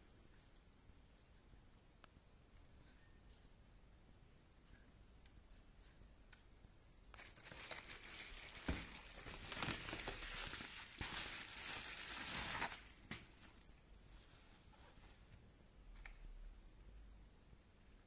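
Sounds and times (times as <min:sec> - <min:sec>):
plastic wrapping crinkling: 0:07.1 - 0:13.7.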